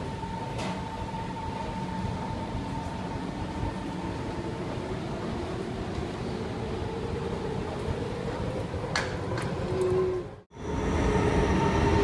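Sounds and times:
metro train rumble and whine: 0.0s - 12.0s.

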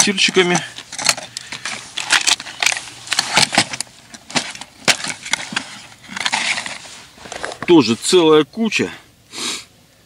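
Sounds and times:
small metal lures rattling: 0.1s - 6.8s
plastic boxes clicking and clattering: 0.9s - 7.7s.

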